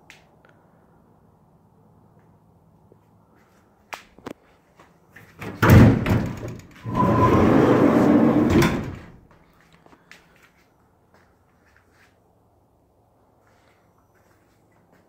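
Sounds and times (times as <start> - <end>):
steel van door opening clunk: 5.4 - 9.2
rough rumbling and scraping: 5.6 - 9.2.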